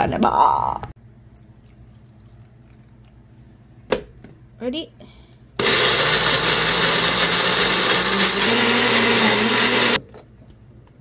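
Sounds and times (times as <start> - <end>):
electric blender running: 5.6 - 10.0.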